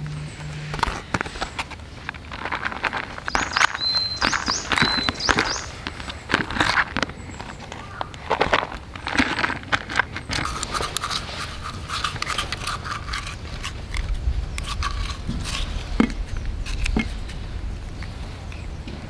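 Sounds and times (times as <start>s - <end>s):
chopsticks scraping glass jar: 2.3s - 7.5s, 9.0s - 17.4s.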